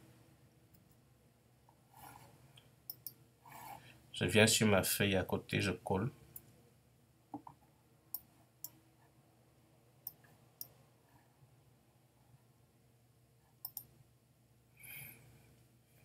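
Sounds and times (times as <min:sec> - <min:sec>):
computer mouse clicks: 0:02.6 - 0:03.2, 0:13.6 - 0:13.9.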